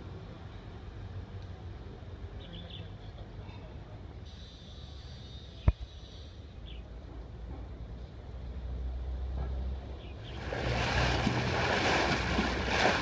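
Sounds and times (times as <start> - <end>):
boat engine hum: 10.2 - 13.0
wake rushing and splashing: 10.3 - 13.0.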